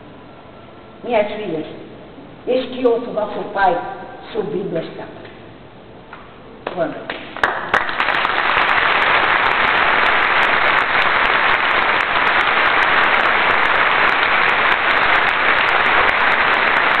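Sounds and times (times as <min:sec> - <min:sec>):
audience applauding: 0:07.4 - 0:17.0.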